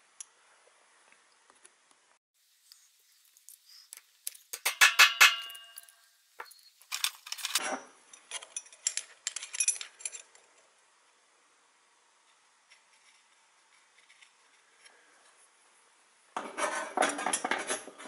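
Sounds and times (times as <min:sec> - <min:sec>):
metal parts clinking: 0:05.4 - 0:10.4.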